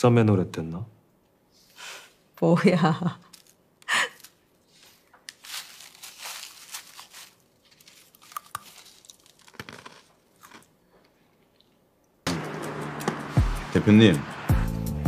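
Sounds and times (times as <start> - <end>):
crunching bites of fried chicken: 8.1 - 10.7.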